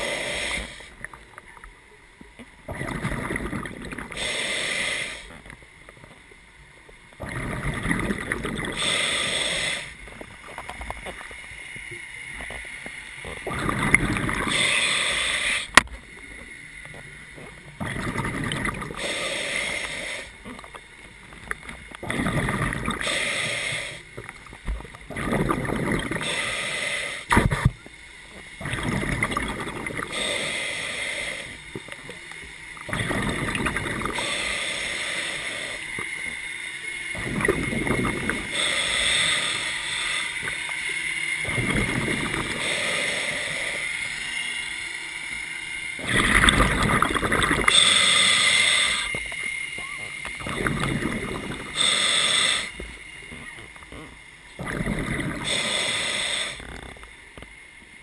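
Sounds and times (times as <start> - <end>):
diver breathing through regulator: 0.0 - 1.0, 2.8 - 5.4, 7.2 - 11.1, 13.4 - 15.8, 17.8 - 20.6, 22.0 - 24.2, 25.1 - 27.8, 28.6 - 31.8, 32.8 - 36.3, 37.1 - 44.5, 46.0 - 53.2, 54.0 - 57.0
exhaled bubbles: 2.6 - 5.5, 7.2 - 11.2, 13.2 - 15.8, 17.7 - 20.8, 21.5 - 27.8, 28.5 - 32.1, 32.8 - 36.2, 37.1 - 44.1, 46.0 - 57.0.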